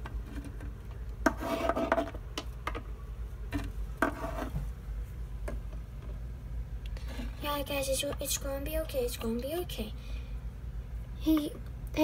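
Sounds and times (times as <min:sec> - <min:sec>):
plastic toys knocking and rubbing: 0:00.0 - 0:02.9, 0:03.5 - 0:04.6
low steady hum: 0:00.0 - 0:12.0.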